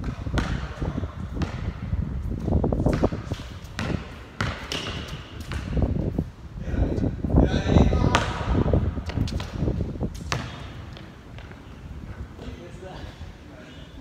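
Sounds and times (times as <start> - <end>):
basketball bouncing on court: 0.0 - 6.0, 7.9 - 11.7.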